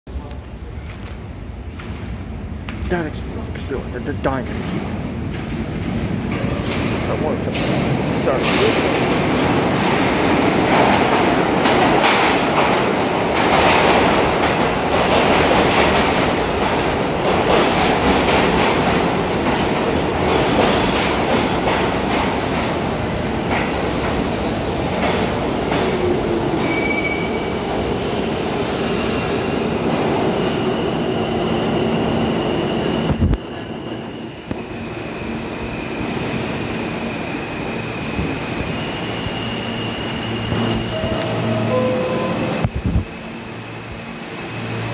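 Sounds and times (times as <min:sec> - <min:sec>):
subway train wheels rumbling: 0:00.1 - 0:44.9
train humming: 0:00.1 - 0:44.9
high squeal: 0:37.8 - 0:42.7.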